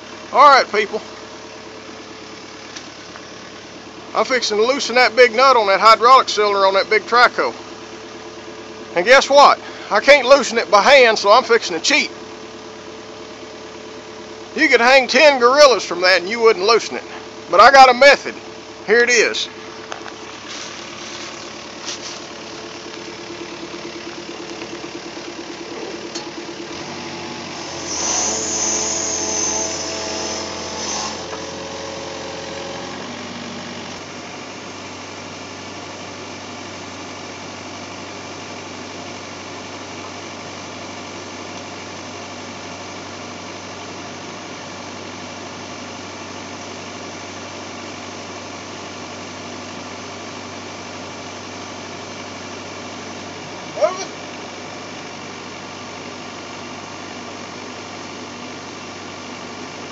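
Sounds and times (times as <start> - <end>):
excavator diesel engine idling: 0.0 - 59.9
high hydraulic whine: 23.4 - 34.1.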